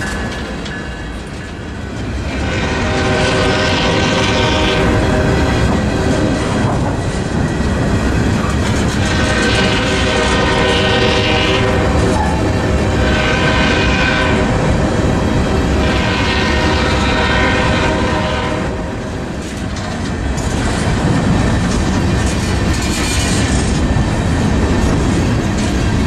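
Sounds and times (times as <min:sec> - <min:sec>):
wheels clacking over rail joints: 0:00.0 - 0:18.0, 0:18.7 - 0:26.0
train rumbling past: 0:00.0 - 0:26.0
train horn: 0:02.2 - 0:06.2, 0:09.0 - 0:14.8, 0:15.6 - 0:19.2.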